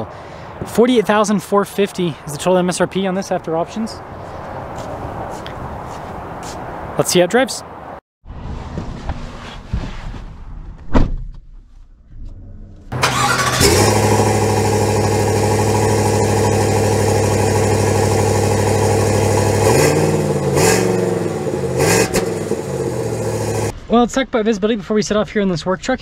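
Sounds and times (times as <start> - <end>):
engine revving: 12.2 - 23.7
engine starting and idling: 12.9 - 19.6.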